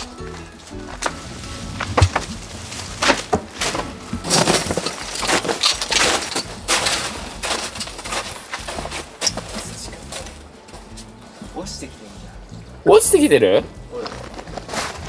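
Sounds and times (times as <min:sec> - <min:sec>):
breaking wood and debris crunching: 0:00.9 - 0:10.4
knocks and cracks of demolition: 0:01.8 - 0:09.6.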